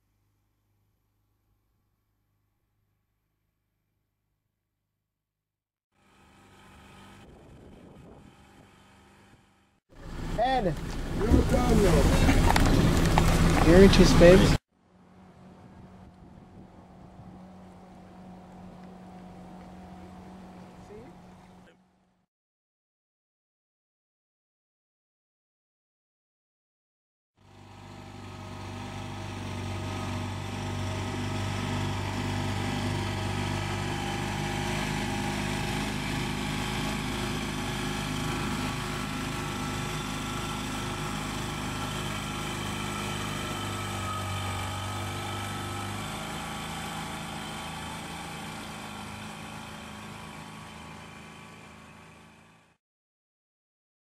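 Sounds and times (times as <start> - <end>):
outboard motor running: 6.0 - 22.2, 27.4 - 52.7.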